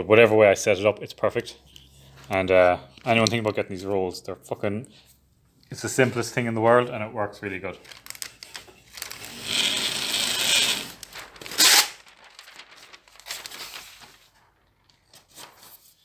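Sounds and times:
paper rustling off roll: 7.8 - 16.0
paper tearing on cutter bar: 9.1 - 12.1.

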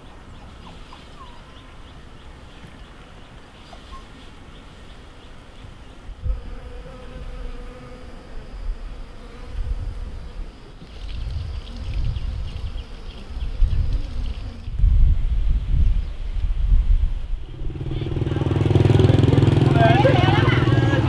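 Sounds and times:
honeybee buzzing: 6.2 - 14.7.

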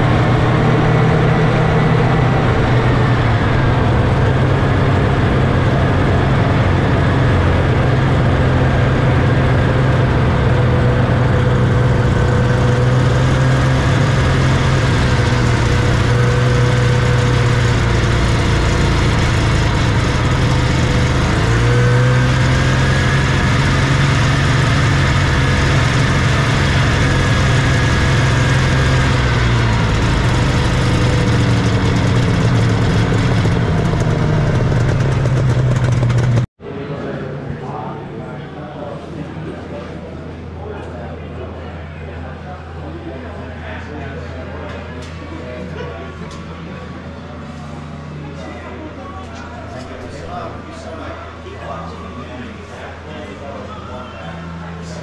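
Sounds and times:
snowmobile engine running: 0.0 - 36.5.

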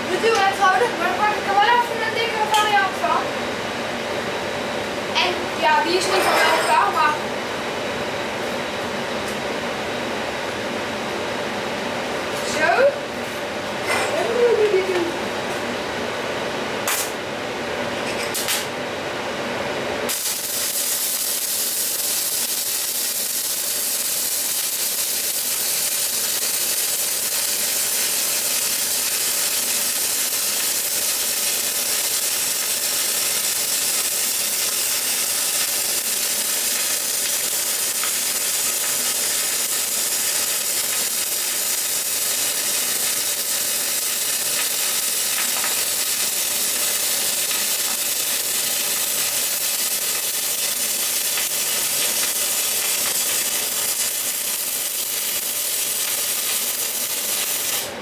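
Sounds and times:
sharp crackles of welding arc: 0.1 - 3.2, 16.8 - 17.2, 18.3 - 18.7, 20.0 - 58.0
welding arc hissing: 20.0 - 58.0.

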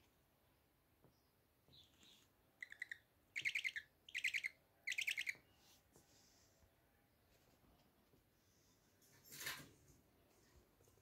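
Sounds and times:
owl chick chittering: 1.7 - 5.4.

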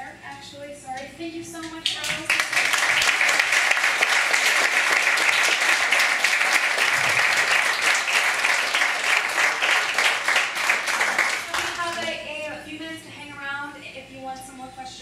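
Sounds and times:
audience applauding: 2.2 - 12.1.

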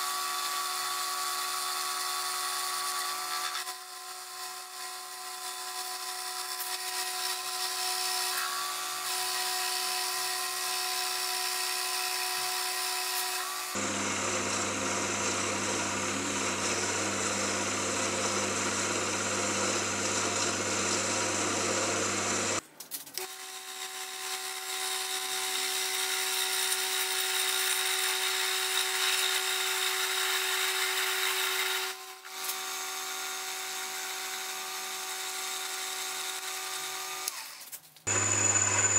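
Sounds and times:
metal lathe running: 13.8 - 22.6, 38.1 - 38.9.

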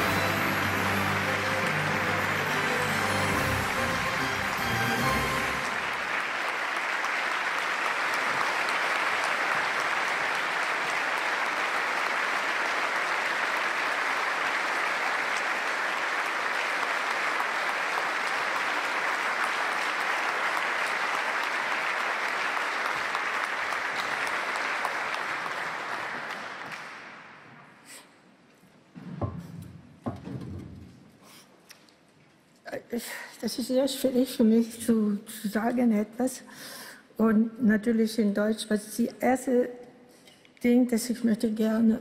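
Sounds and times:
audience applauding: 0.0 - 27.5.

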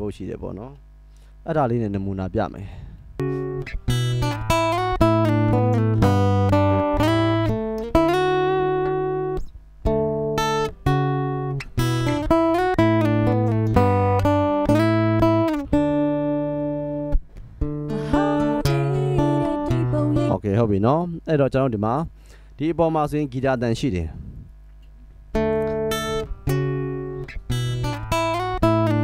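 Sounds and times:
guitar picked notes and chords: 3.1 - 20.6, 24.8 - 29.0.

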